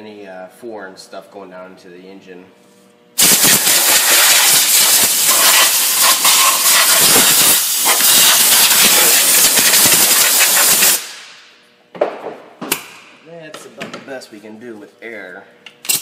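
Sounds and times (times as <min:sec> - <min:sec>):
compressed air blow gun hiss: 0:03.2 - 0:11.3.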